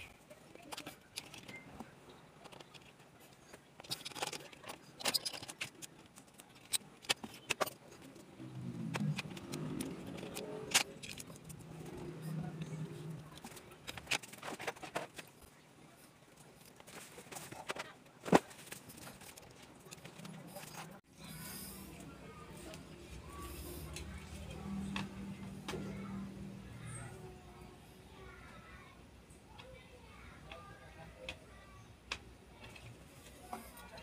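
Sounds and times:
small tools and parts clattering: 0:00.0 - 0:15.6, 0:16.3 - 0:21.0.

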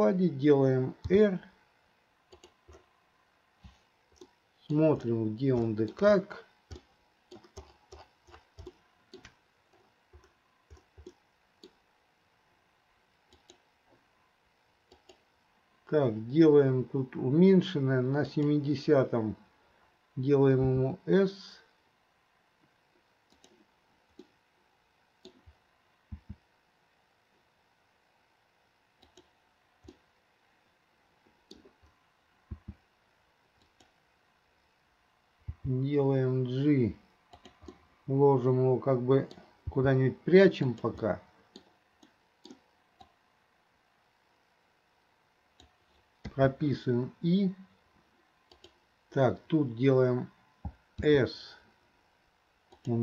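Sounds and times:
mouse and keyboard clicks: 0:06.7 - 0:09.4, 0:23.3 - 0:24.3, 0:37.3 - 0:37.8.

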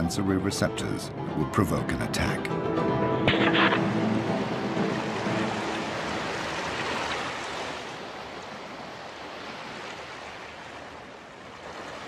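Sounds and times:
sea water washing: 0:03.4 - 0:12.0.

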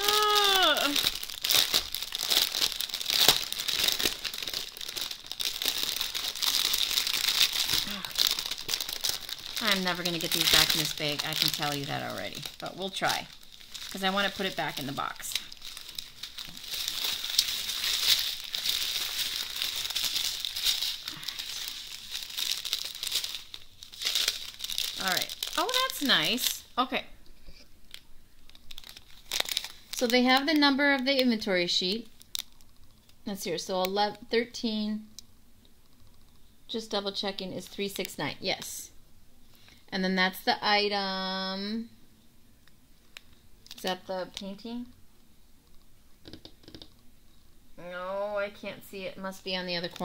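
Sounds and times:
plastic bag crinkling: 0:00.0 - 0:27.0, 0:27.8 - 0:33.7.

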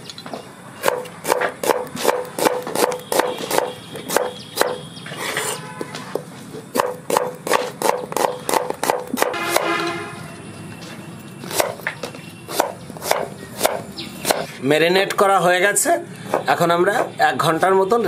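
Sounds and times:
knife chopping on wooden board: 0:00.8 - 0:04.8, 0:06.1 - 0:09.8, 0:11.5 - 0:14.5, 0:16.3 - 0:17.1
knife scraping board: 0:00.8 - 0:10.0, 0:11.4 - 0:14.6.

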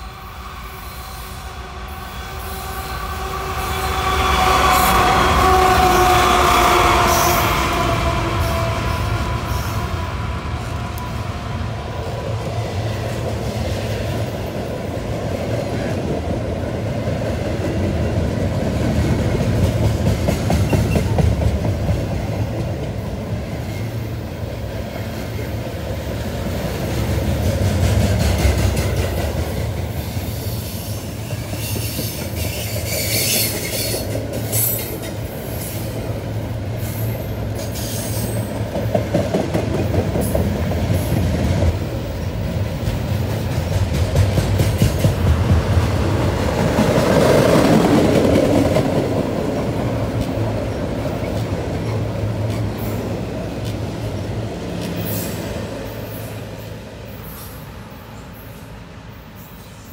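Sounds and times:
freight train wheels rumbling: 0:00.0 - 0:59.9
wheel squeals and clanks: 0:30.6 - 0:35.0.

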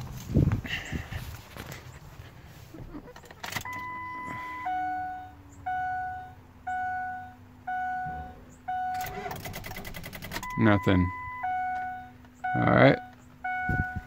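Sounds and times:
dashboard warning chime: 0:03.6 - 0:14.0.

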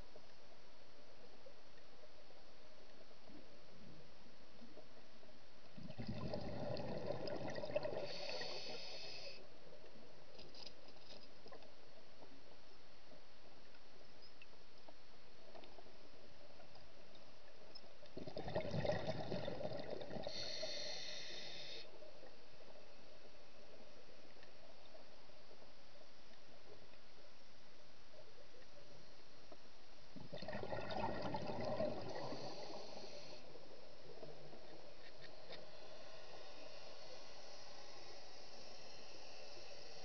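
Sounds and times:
regulator exhale bubbling: 0:05.8 - 0:09.4, 0:18.2 - 0:21.9, 0:30.2 - 0:33.5
hissing breath intake: 0:08.0 - 0:09.4, 0:20.2 - 0:21.9, 0:32.1 - 0:33.6, 0:35.2 - 0:40.0.

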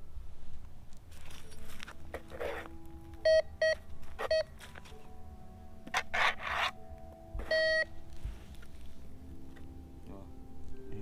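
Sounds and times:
scraping and brushing: 0:01.1 - 0:02.8, 0:05.9 - 0:06.8
metal detector beeping: 0:03.2 - 0:04.6, 0:07.4 - 0:07.9.

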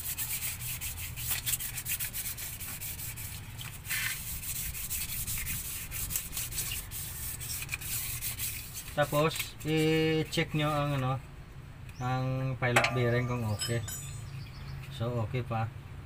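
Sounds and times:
hand scrubbing metal surface: 0:00.0 - 0:10.8, 0:12.7 - 0:14.2.

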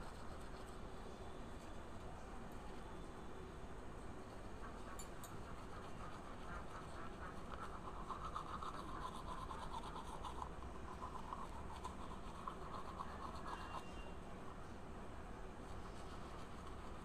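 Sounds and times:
toothbrush scrubbing teeth: 0:04.3 - 0:13.9, 0:15.6 - 0:17.0.

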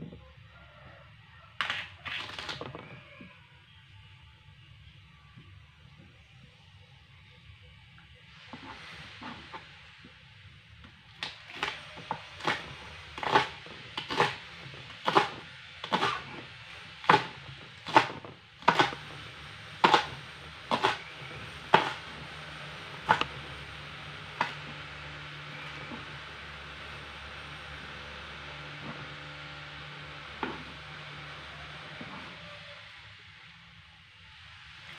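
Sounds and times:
knife chopping on cutting board: 0:12.4 - 0:14.4, 0:15.0 - 0:16.2, 0:17.0 - 0:19.0, 0:19.8 - 0:21.0, 0:21.7 - 0:22.0.

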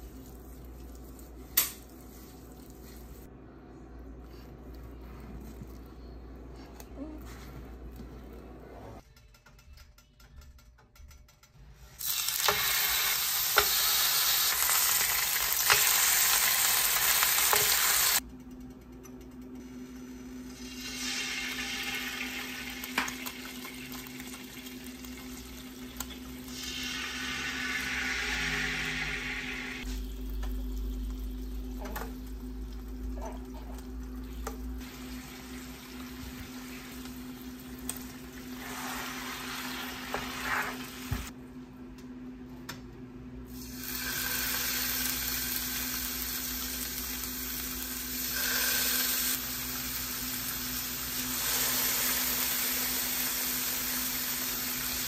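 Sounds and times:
meat and fish sizzling in oil: 0:12.0 - 0:18.2, 0:20.5 - 0:32.6, 0:34.4 - 0:41.3, 0:43.6 - 0:55.0.

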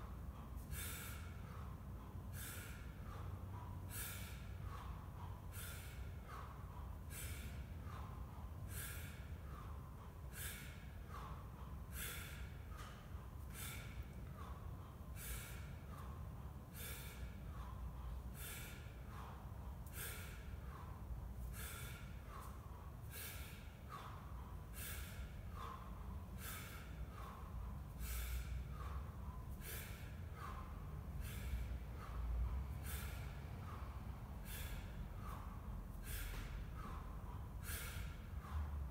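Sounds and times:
man's sharp hissing breaths: 0:00.0 - 0:38.9.

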